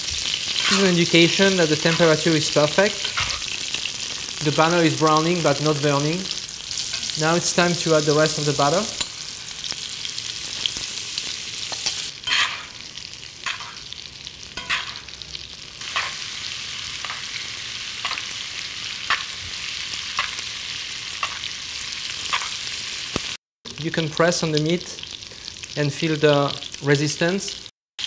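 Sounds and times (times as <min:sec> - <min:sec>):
butter sizzling in a pan: 0:00.0 - 0:27.7
spoon scraping a pan: 0:00.5 - 0:01.0, 0:03.0 - 0:03.6, 0:11.6 - 0:12.8, 0:13.4 - 0:13.9, 0:14.6 - 0:15.2, 0:15.8 - 0:16.4.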